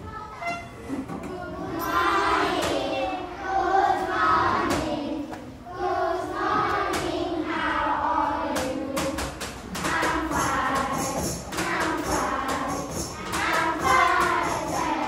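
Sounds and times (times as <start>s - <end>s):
voices singing together: 1.1s - 15.0s
sharp percussion hits: 9.0s - 15.0s.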